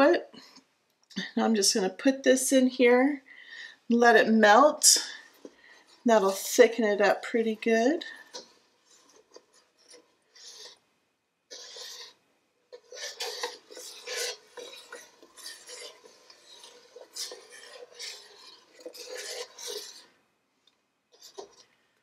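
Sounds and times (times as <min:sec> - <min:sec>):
spoon stirring thick soup: 0:03.2 - 0:22.0
spoon scraping metal pot: 0:04.7 - 0:10.8, 0:11.5 - 0:20.2, 0:21.1 - 0:21.8.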